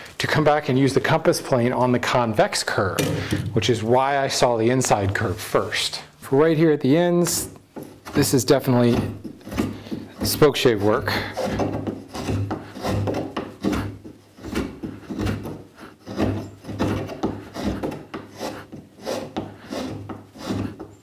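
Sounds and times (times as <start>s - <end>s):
spokeshave scraping wood: 7.3s - 21.0s.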